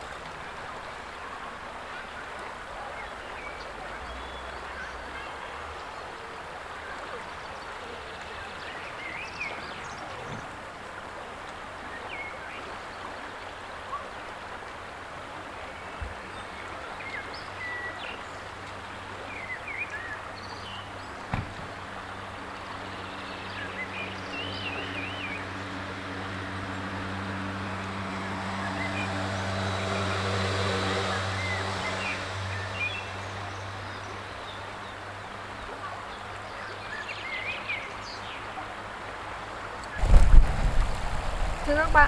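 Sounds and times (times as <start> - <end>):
river water running: 0.0 - 42.0
low motor hum: 39.9 - 42.0.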